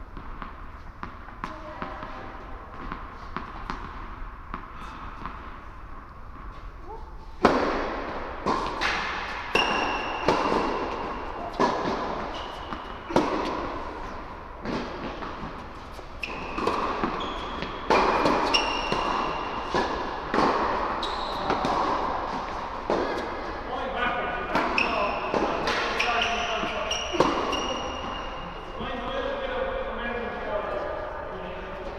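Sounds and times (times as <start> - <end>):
tennis racket strokes: 0.0 - 23.7
tennis ball bounces: 0.1 - 5.5, 7.4 - 23.5, 24.5 - 28.2.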